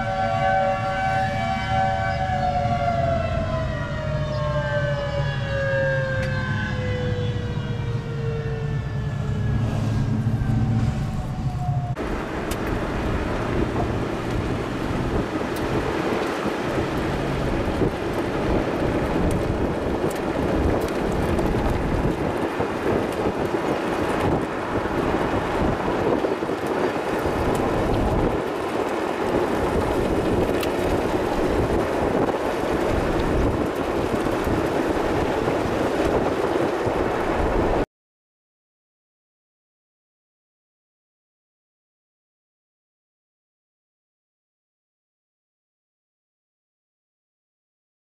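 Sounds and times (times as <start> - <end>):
strong wind on microphone: 8.7 - 37.9.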